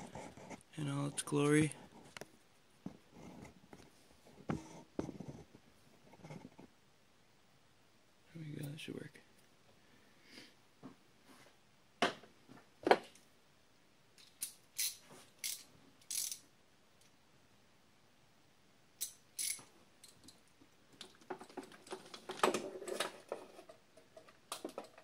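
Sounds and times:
ratchet wrench clicking: 0:14.2 - 0:16.4, 0:19.0 - 0:19.6.

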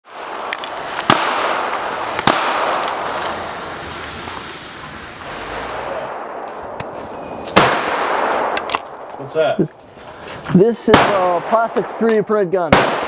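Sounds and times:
gunshots with rolling echo: 0:00.0 - 0:03.8, 0:05.6 - 0:09.6, 0:10.7 - 0:13.0
distant gunshot pops: 0:02.2 - 0:03.0.

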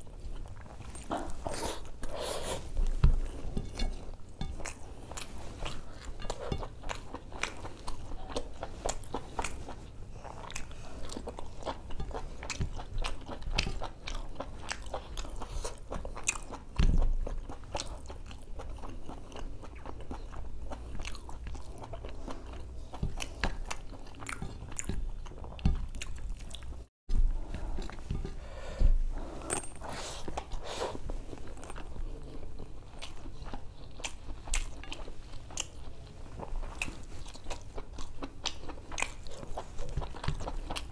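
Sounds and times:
person chewing and lip-smacking: 0:03.7 - 0:26.9, 0:31.5 - 0:40.9.

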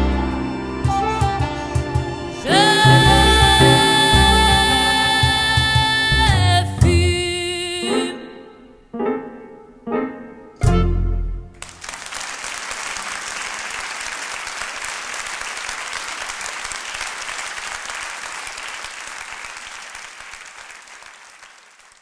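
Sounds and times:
final chord ringing: 0:02.5 - 0:05.3
audience applauding: 0:11.6 - 0:22.0.

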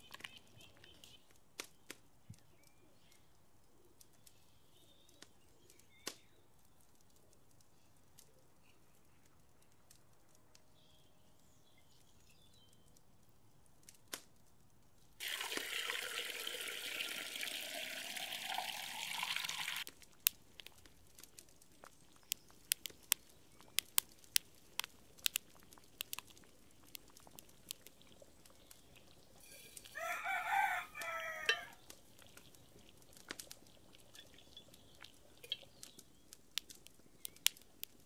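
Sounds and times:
wood fire crackling and popping: 0:00.0 - 0:38.0
water pouring into metal kettle: 0:15.2 - 0:19.9, 0:27.1 - 0:35.8.

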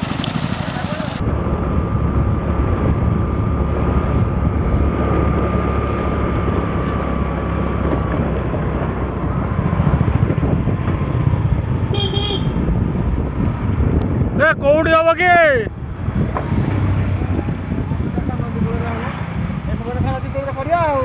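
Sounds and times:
motorbike engine running: 0:00.0 - 0:07.4
wind buffeting microphone: 0:00.0 - 0:21.0.

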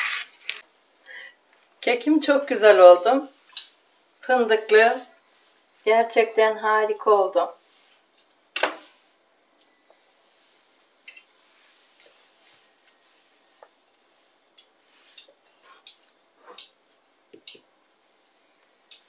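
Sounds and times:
kitchenware clinking: 0:11.0 - 0:13.0.

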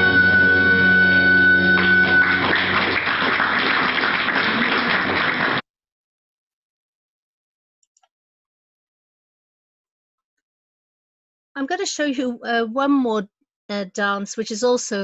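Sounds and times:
string ensemble playing dance music: 0:00.0 - 0:05.5
audience applause: 0:00.0 - 0:05.6.

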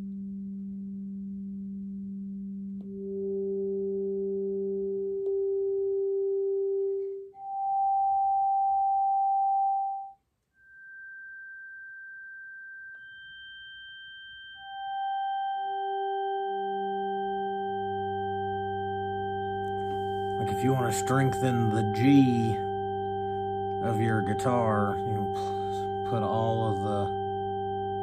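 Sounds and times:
steady sine tones through guitar: 0:00.0 - 0:28.0.

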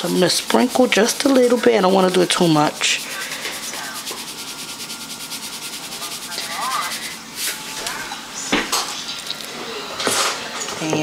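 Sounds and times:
salt grinder rasping: 0:00.0 - 0:08.1.

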